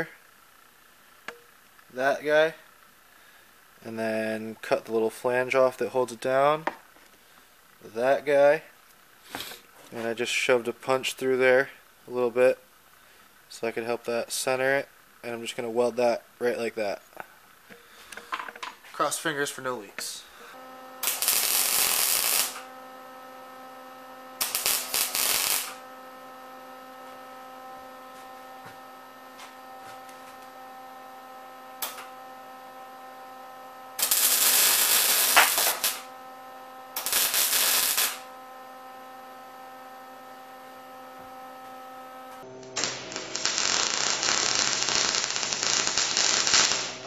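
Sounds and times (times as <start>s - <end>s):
welder crackling sizzle: 0.0s - 6.7s, 19.1s - 47.0s
electrical hum: 0.0s - 47.0s.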